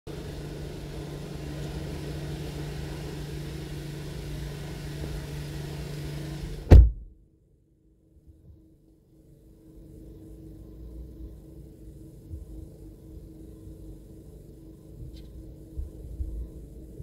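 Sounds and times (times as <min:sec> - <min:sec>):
car door slamming: 0:06.6 - 0:07.1.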